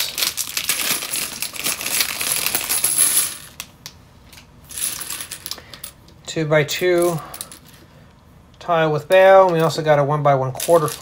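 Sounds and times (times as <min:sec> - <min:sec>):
plastic bag crinkling: 0:00.0 - 0:03.1
plastic pieces clattering onto table: 0:00.0 - 0:03.7.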